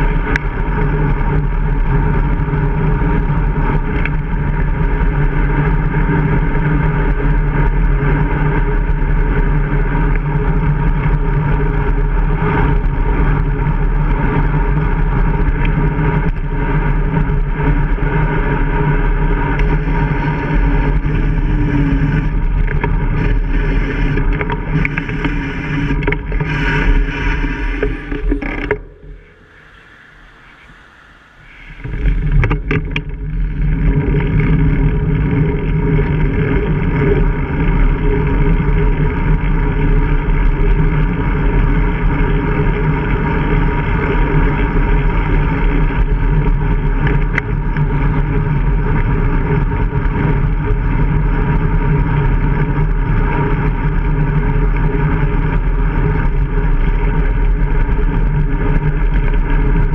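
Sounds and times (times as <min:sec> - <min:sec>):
wind and road noise rumble: 0:00.0 - 0:59.9
steady hum: 0:14.6 - 0:48.9.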